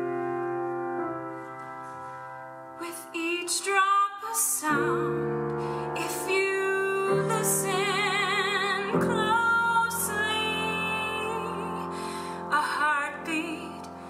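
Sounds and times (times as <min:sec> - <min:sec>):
piano accompaniment: 0:00.0 - 0:14.0
woman singing with vibrato: 0:02.8 - 0:14.0.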